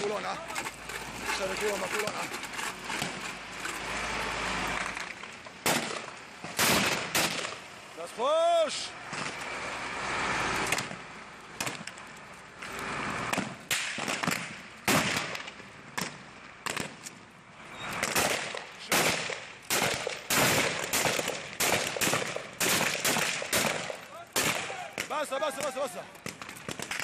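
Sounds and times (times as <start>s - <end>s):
rifle gunfire: 18.0s - 25.8s.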